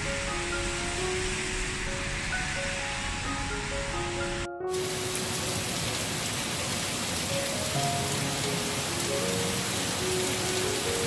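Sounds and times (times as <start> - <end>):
soft music of held notes: 0.0 - 11.0
steady rain: 0.0 - 11.0.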